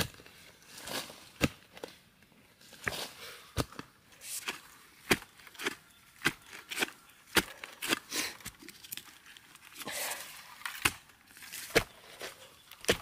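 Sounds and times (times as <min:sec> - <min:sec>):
hands scraping loose earth: 0:02.6 - 0:13.0
digging tool striking soil: 0:02.8 - 0:08.6, 0:10.6 - 0:13.0.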